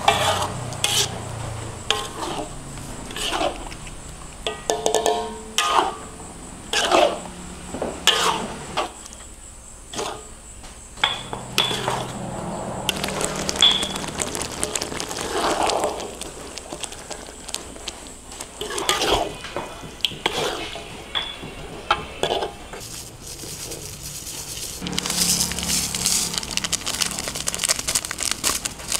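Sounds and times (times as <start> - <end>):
metal utensil scraping cookware: 0.0 - 3.8, 4.4 - 6.1, 8.0 - 9.0, 11.0 - 12.2, 18.6 - 26.3.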